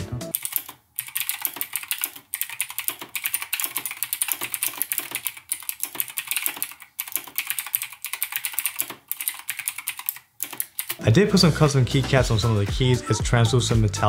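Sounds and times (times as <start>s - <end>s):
fast typing on clicky keyboard: 0.3s - 11.0s.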